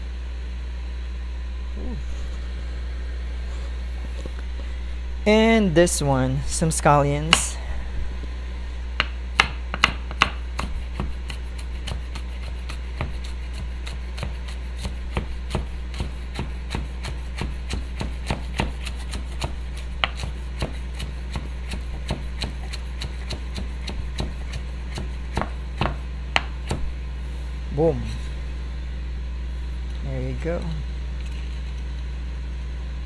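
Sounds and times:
steady low hum: 0:00.0 - 0:33.0
knife chopping on wooden board: 0:09.0 - 0:26.9.

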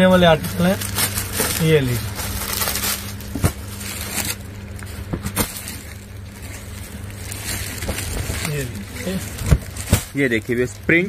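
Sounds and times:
low electrical hum: 0:00.0 - 0:11.0
plastic packaging rustling: 0:00.0 - 0:11.0.

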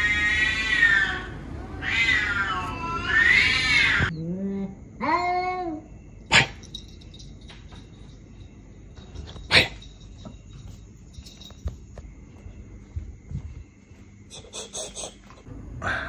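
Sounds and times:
cats yowling: 0:00.0 - 0:04.3.

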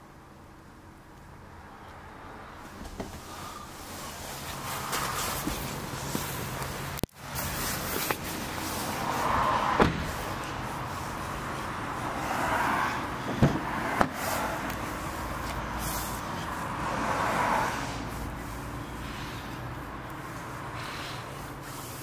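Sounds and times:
soft rustling: 0:02.6 - 0:12.2
car door clicks and knocks: 0:02.8 - 0:03.2, 0:09.8 - 0:10.2, 0:13.3 - 0:14.2.

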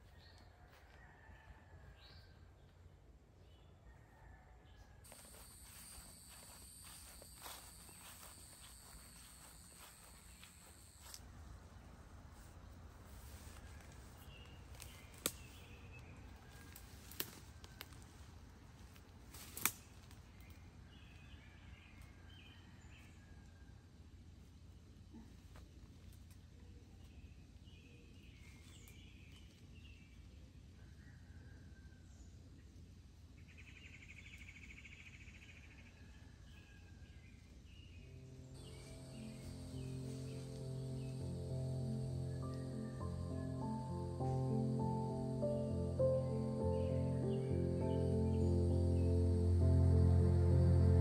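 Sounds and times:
twigs snapping underfoot: 0:14.6 - 0:15.7, 0:16.6 - 0:18.1, 0:18.9 - 0:20.5
low outdoor rumble: 0:38.2 - 0:51.0
soft background music: 0:38.2 - 0:51.0.

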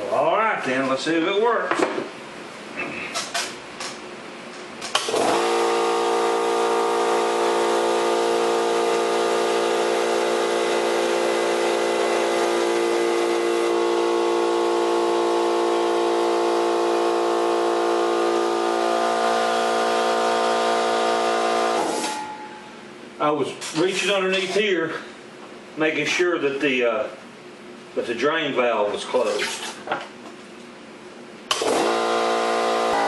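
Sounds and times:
air compressor running: 0:04.8 - 0:22.5, 0:31.5 - 0:33.0.

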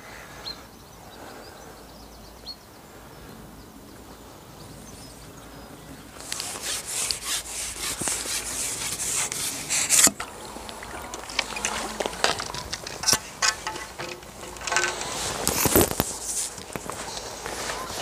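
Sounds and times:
fishing pole sections scraping: 0:06.2 - 0:18.0.

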